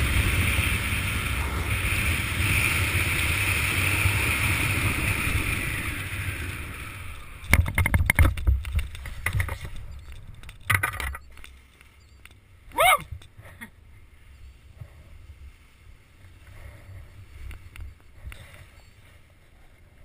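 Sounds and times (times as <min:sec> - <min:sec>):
wind rushing over microphone: 0:00.0 - 0:10.4.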